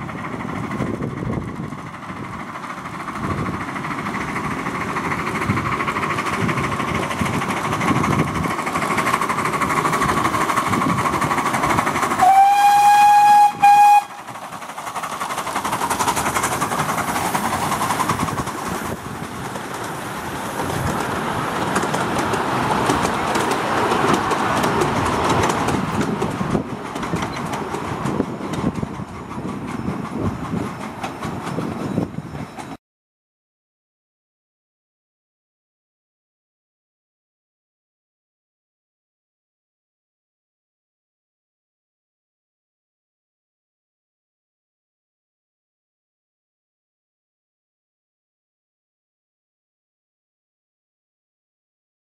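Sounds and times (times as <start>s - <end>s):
miniature train rumbling and rattling: 0.0s - 32.8s
steam locomotive whistle: 12.2s - 14.4s.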